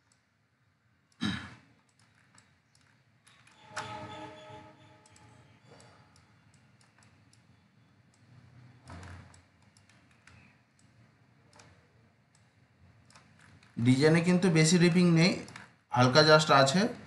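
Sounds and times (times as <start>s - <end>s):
computer mouse clicks: 0.0s - 0.3s, 1.1s - 4.2s, 5.0s - 13.8s, 15.4s - 15.8s.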